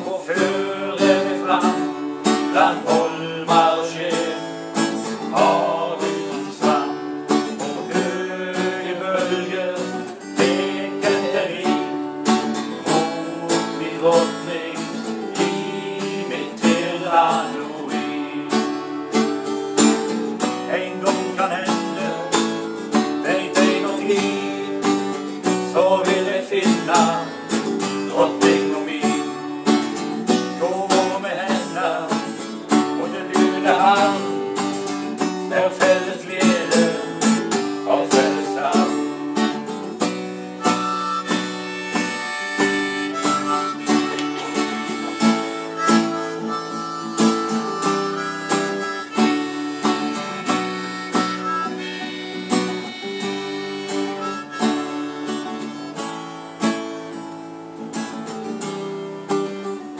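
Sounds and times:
acoustic guitar strumming: 0.0 - 59.9
harmonica playing: 40.2 - 56.3.

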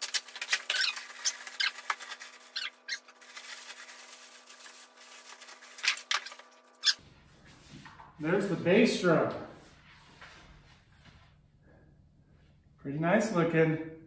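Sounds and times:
plastic wrapping crinkling: 0.0 - 7.0.

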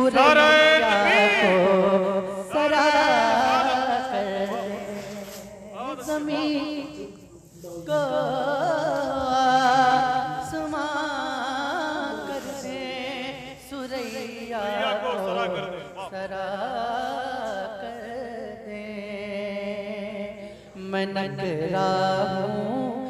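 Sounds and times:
man singing: 0.0 - 13.2, 13.8 - 16.6.

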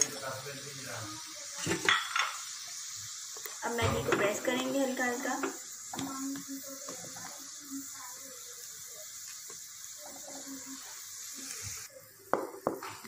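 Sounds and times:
water boiling in pan: 0.0 - 13.0.

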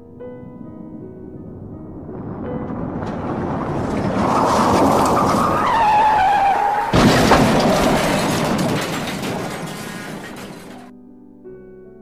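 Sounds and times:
car tyres screeching: 0.0 - 10.9
loud burst of noise with knock: 6.9 - 10.9.

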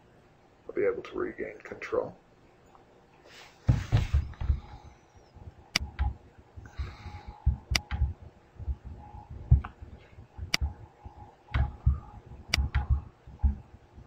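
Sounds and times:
soft low thumps: 3.6 - 14.0
computer mouse clicking: 5.7 - 13.6.

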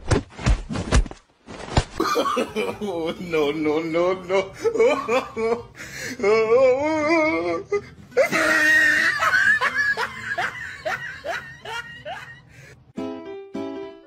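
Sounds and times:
person laughing hard: 4.3 - 6.4, 8.2 - 12.7.

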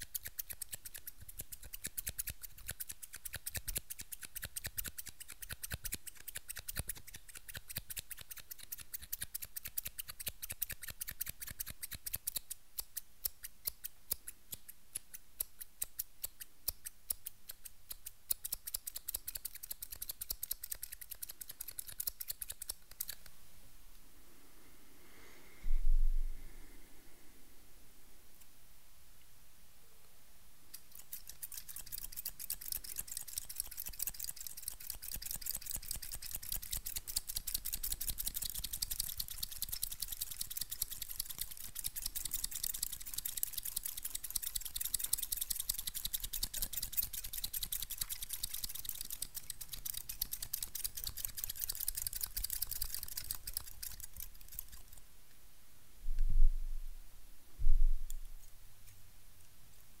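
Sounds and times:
scissors snipping rapidly: 0.0 - 23.2, 30.7 - 55.0.

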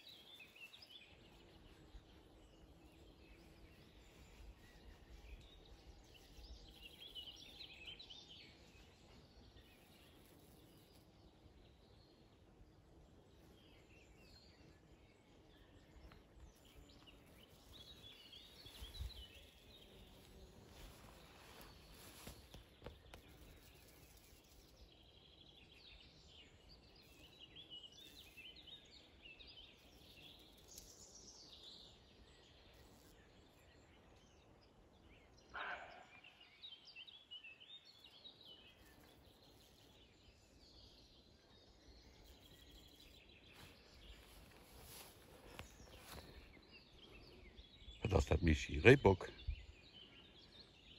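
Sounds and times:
small birds singing: 0.0 - 50.9
deer alarm bark: 35.6 - 36.2.

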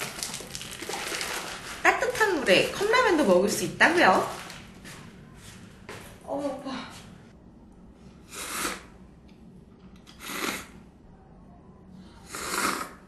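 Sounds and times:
noodles being slurped: 0.0 - 1.8.

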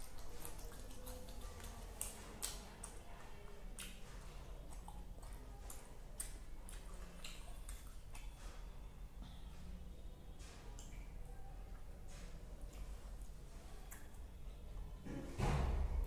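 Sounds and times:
fingers mixing food on steel plate: 0.0 - 8.8
chewing with wet mouth clicks: 0.0 - 9.4, 10.4 - 14.5.

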